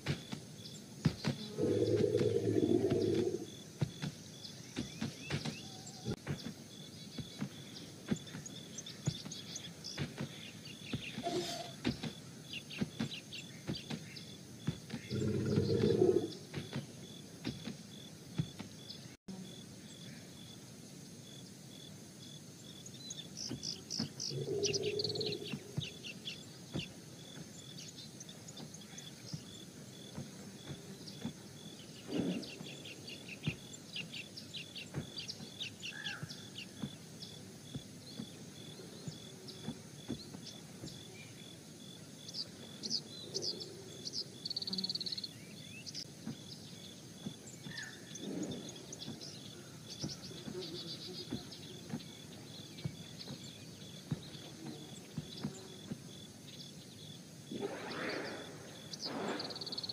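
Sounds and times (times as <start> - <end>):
small birds chirping: 0.0 - 59.9
faint hiss: 19.3 - 59.9.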